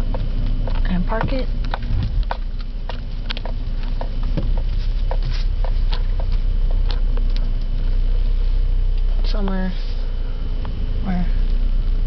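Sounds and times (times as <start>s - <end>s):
car interior low rumble: 0.0s - 12.0s.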